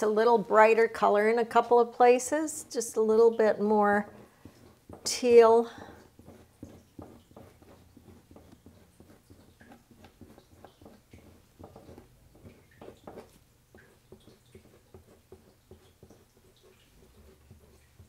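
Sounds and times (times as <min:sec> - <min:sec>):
painting knife scraping wax and paint: 0:04.0 - 0:18.0.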